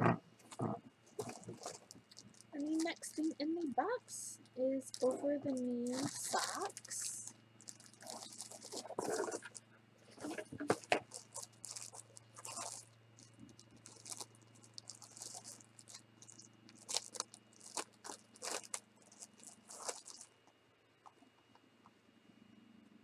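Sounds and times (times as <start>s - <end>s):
plastic packaging crinkling: 0.5s - 20.4s.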